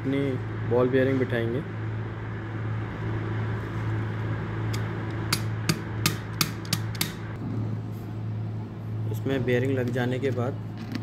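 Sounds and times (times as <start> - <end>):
steady low hum: 0.0 - 11.0
sharp metal taps: 4.7 - 7.2.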